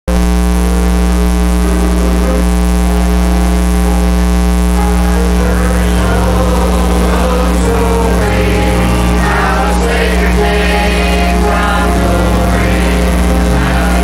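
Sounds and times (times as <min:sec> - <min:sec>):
electrical mains hum: 0:00.1 - 0:14.0
choir singing with instruments: 0:05.2 - 0:14.0.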